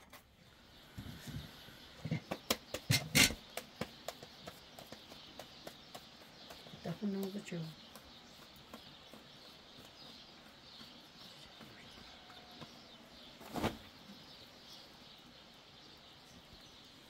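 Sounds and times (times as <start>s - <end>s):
faint bird chirps: 0.4s - 17.0s
dough thudding on embers: 2.0s - 9.7s.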